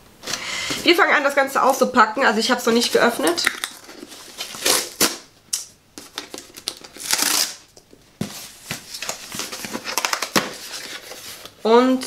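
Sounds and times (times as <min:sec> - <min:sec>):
cardboard tearing: 0:03.6 - 0:05.3, 0:06.1 - 0:07.7.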